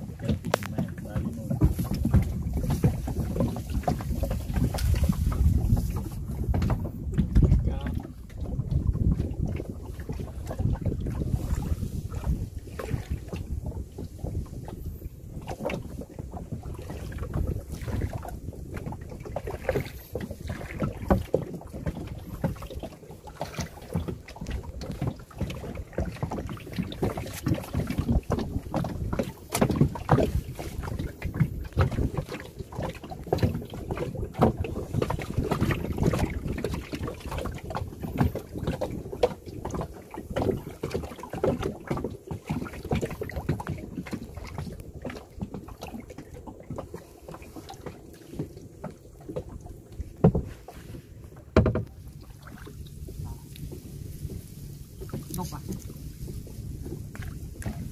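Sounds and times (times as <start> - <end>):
water splashing against boat hull: 0.0 - 57.9
wind buffeting microphone: 0.0 - 57.9
low thumps: 48.5 - 57.9.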